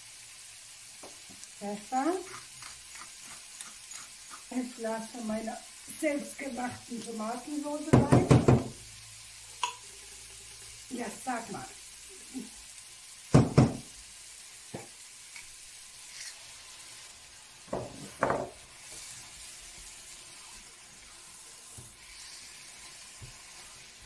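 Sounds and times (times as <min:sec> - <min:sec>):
curry sizzling in a frying pan: 0:00.0 - 0:24.0
sauce pouring and stirring: 0:00.5 - 0:06.0, 0:14.3 - 0:24.0
sharp knocks against pan: 0:13.3 - 0:13.8.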